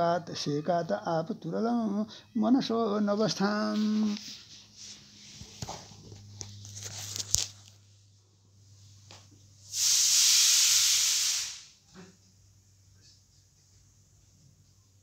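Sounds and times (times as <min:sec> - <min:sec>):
loud even hiss: 0:09.6 - 0:11.9.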